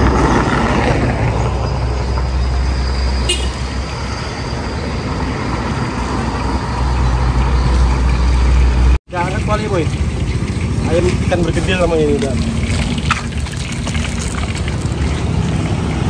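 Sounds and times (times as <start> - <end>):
road traffic rumble: 0.0 - 16.0
fish frying in oil: 9.1 - 16.0.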